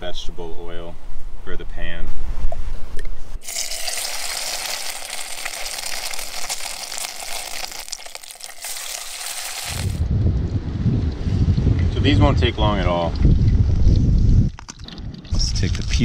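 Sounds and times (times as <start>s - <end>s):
fish frying in hot oil: 3.4s - 10.0s
wind rumble on microphone: 9.7s - 16.0s.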